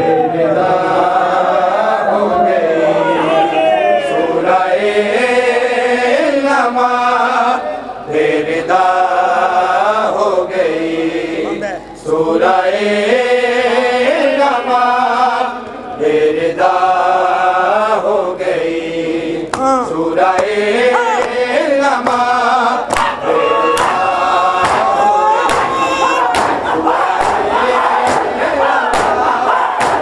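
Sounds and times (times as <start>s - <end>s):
men chanting a lament: 0.0s - 30.0s
chest slapping: 19.5s - 19.8s.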